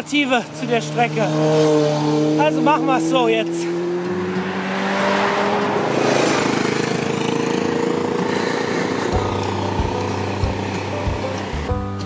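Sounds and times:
motorcycle passing: 0.0 - 12.0.

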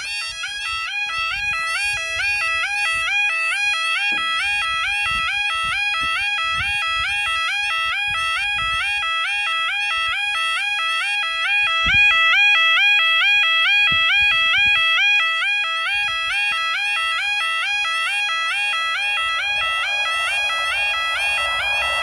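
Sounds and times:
level crossing alarm two-tone yodel: 0.0 - 22.0
low thumps: 18.8 - 22.0.

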